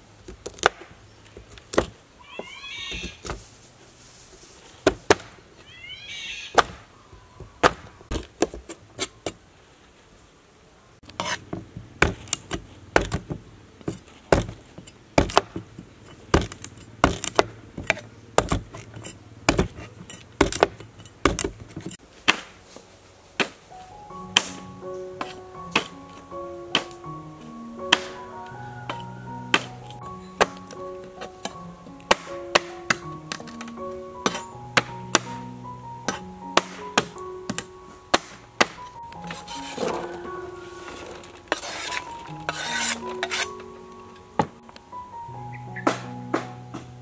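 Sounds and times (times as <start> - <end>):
cleaver chopping on wooden board: 15.2 - 15.6, 16.3 - 18.9, 19.5 - 21.6, 32.1 - 33.5, 36.1 - 38.8
music: 23.7 - 47.0.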